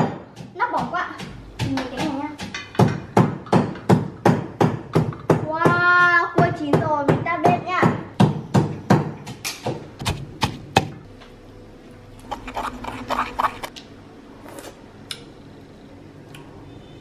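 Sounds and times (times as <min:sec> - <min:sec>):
wooden pestle knocking in mortar: 0:00.0 - 0:11.0.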